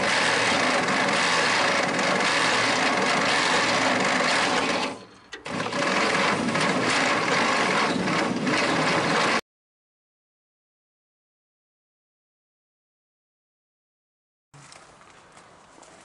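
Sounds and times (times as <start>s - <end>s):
starter cranking engine: 0.0s - 9.4s.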